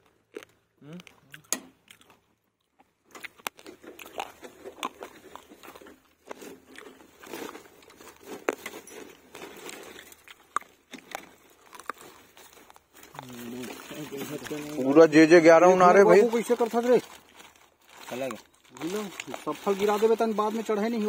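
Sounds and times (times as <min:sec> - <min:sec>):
plastic sack rustling: 0:06.3 - 0:10.3, 0:11.0 - 0:21.0.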